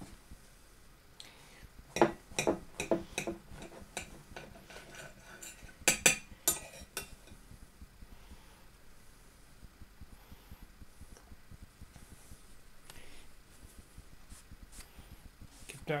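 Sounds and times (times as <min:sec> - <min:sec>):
knife clinking on ceramic plate: 0:02.0 - 0:07.4.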